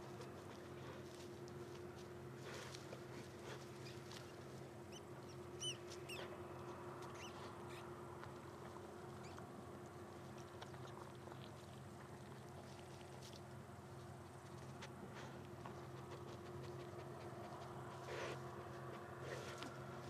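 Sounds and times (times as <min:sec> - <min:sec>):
faint low hum: 0:00.0 - 0:20.0
small animal chirping calls: 0:04.9 - 0:06.3, 0:07.0 - 0:07.9, 0:09.1 - 0:09.4.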